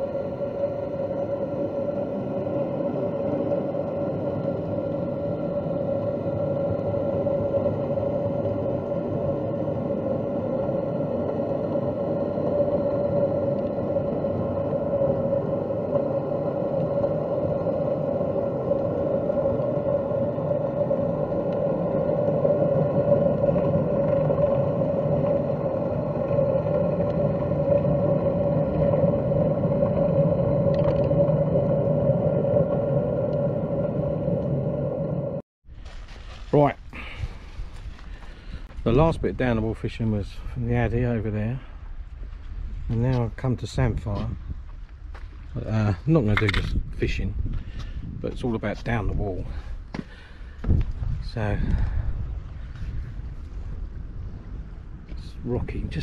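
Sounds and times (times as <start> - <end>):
low rushing noise: 0.0 - 35.4
steady droning hum: 0.0 - 56.0.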